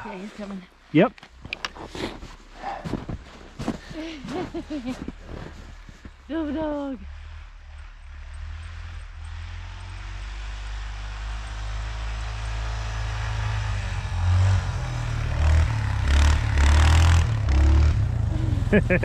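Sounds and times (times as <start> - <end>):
atv engine revving: 6.2 - 19.0.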